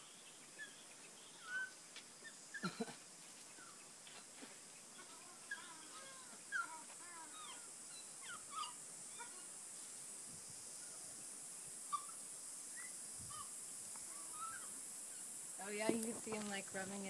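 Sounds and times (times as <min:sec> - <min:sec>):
steady high hiss: 0:00.0 - 0:17.0
lemurs calling: 0:04.9 - 0:09.6, 0:11.9 - 0:16.6.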